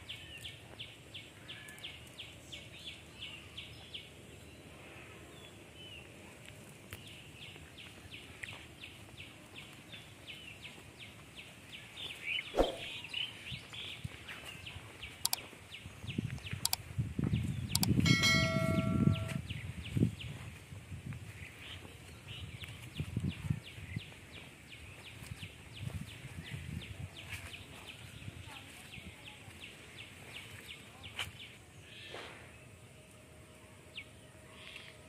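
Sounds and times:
bird chirping: 0:07.1 - 0:19.7
brief ringing tone: 0:17.8 - 0:19.4.

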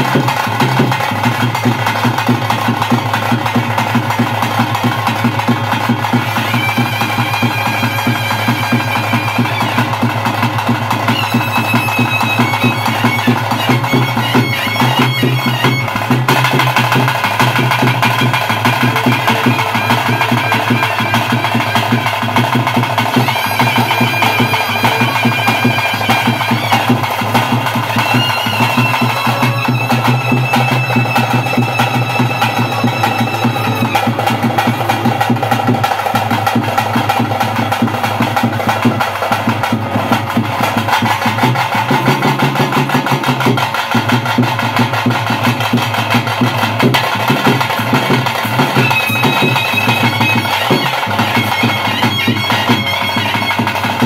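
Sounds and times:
fast dense drumming: 0:00.0 - 0:54.0
wind instrument long high notes: 0:05.0 - 0:35.3, 0:47.6 - 0:54.0.

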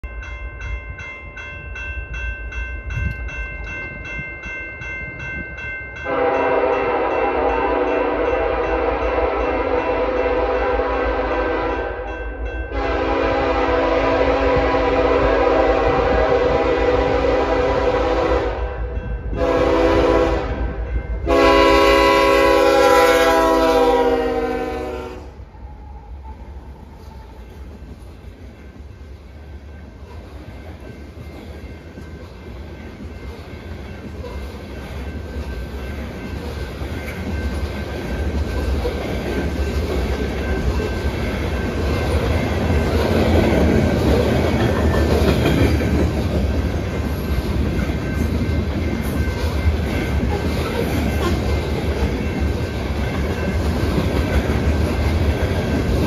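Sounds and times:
crossing warning bell ringing: 0:00.0 - 0:56.0
low rumble of train: 0:00.0 - 0:56.0
locomotive horn sounding: 0:06.0 - 0:12.1, 0:12.7 - 0:25.4.

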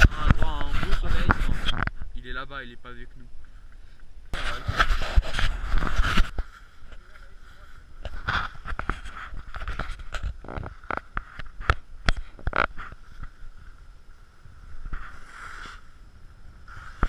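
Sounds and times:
wind on microphone: 0:00.0 - 0:02.2
skis scraping over snow: 0:14.9 - 0:15.9, 0:16.7 - 0:17.0.

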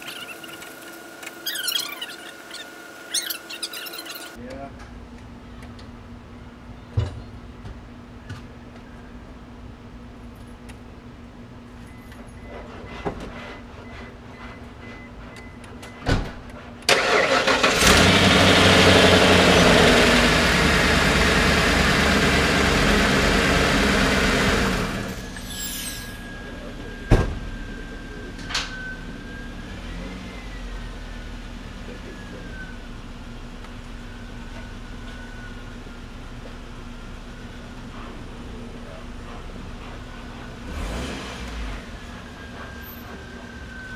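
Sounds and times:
engine starter cranking: 0:16.9 - 0:18.6
car engine idling: 0:16.9 - 0:25.1.

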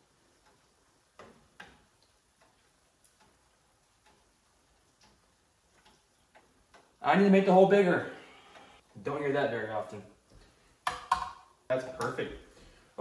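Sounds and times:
faint ticks and taps: 0:00.0 - 0:07.0, 0:10.2 - 0:12.8.

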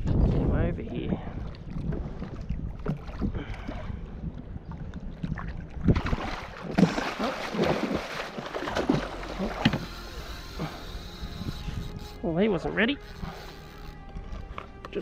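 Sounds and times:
fish thrashing and splashing: 0:05.4 - 0:12.1.

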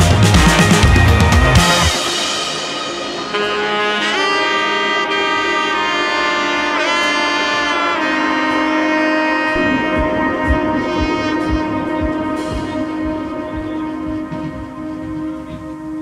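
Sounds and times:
drum beat: 0:00.0 - 0:02.1, 0:09.6 - 0:16.0
saxophone-like melody: 0:00.0 - 0:16.0.

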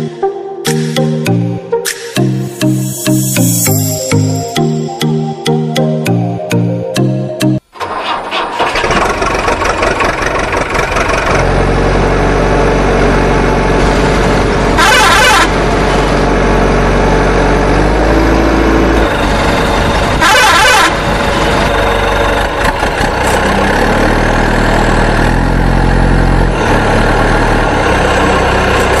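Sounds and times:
truck engine running: 0:07.8 - 0:29.0
truck horn blasts: 0:14.7 - 0:15.7, 0:20.1 - 0:21.1.

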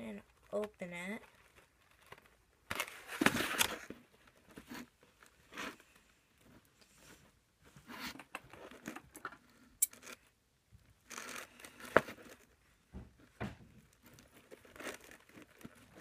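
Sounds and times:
plastic wrapping crinkling: 0:13.8 - 0:16.0.

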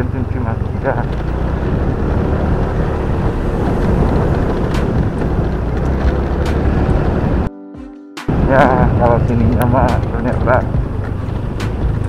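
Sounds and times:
motorcycle running: 0:00.0 - 0:07.5, 0:08.3 - 0:12.0
wind noise on microphone: 0:00.6 - 0:07.5.

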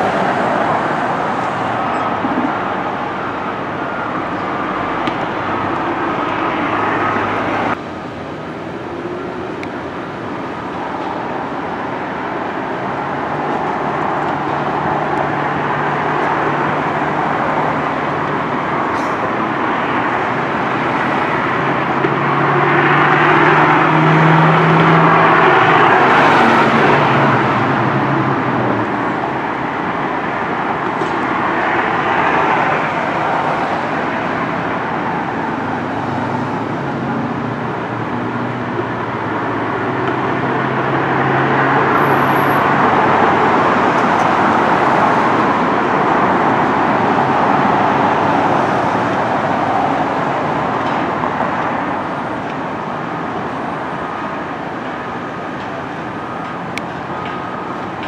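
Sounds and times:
rush of moving vehicles: 0:00.0 - 0:58.0.

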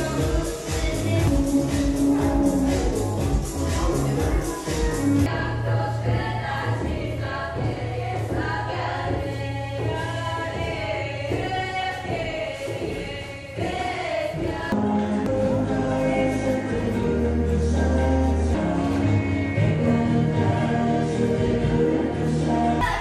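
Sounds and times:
steady bass line: 0:00.0 - 0:07.0, 0:14.8 - 0:23.0
choir singing: 0:02.1 - 0:23.0.

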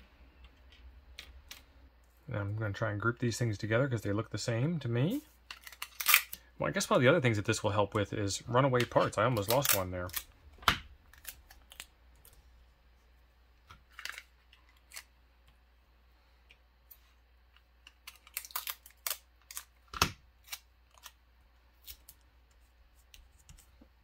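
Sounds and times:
tape dispenser handled: 0:05.5 - 0:06.4.

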